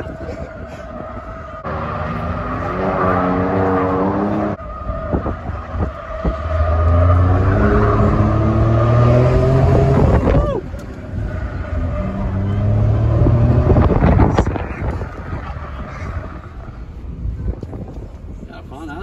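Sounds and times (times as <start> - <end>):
tires skidding on pavement: 0.0 - 18.4
truck engine revving: 1.6 - 16.4.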